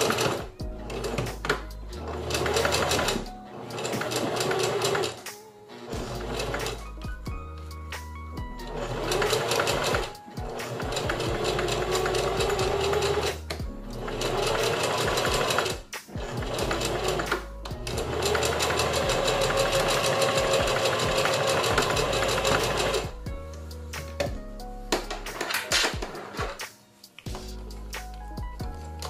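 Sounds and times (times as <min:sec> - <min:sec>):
electric sewing machine stitching: 0:00.0 - 0:06.9, 0:08.7 - 0:23.1.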